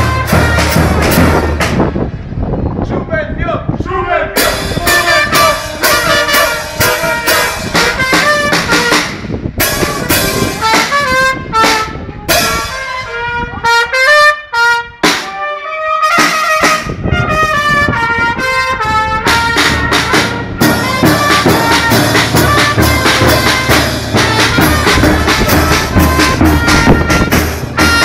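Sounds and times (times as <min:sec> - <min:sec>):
drums and cymbals beat: 0:00.0 - 0:01.9, 0:04.4 - 0:13.0, 0:15.0 - 0:15.4, 0:16.0 - 0:17.0, 0:19.2 - 0:28.0
trumpets playing melody: 0:00.0 - 0:01.9, 0:04.4 - 0:28.0.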